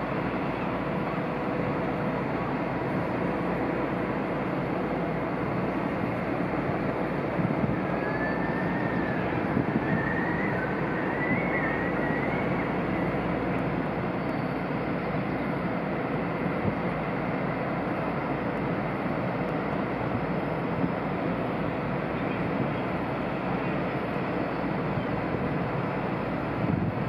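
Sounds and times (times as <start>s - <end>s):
churning water rumble: 0.0s - 27.0s
faint wavering whistle: 7.7s - 13.4s, 14.0s - 15.1s.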